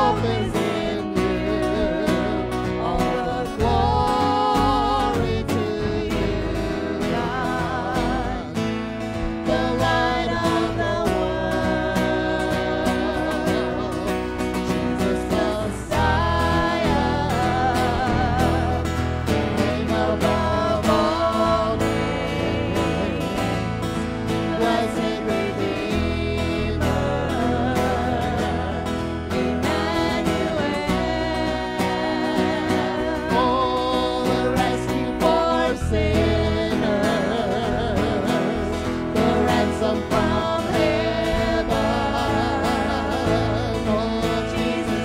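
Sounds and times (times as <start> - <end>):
acoustic and electric guitar: 0.0 - 45.0
man and woman singing: 0.0 - 45.0.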